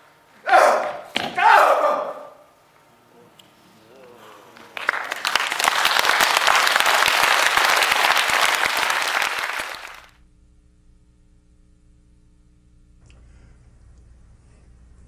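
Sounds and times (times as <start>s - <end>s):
quiet steady hum: 0.0s - 6.3s, 10.1s - 15.0s
audience applauding: 4.5s - 10.2s.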